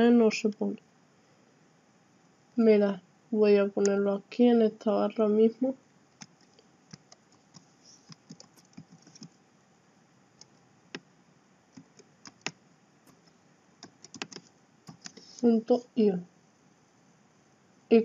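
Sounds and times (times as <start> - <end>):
keyboard keys clicking: 6.2 - 9.3, 11.7 - 15.2.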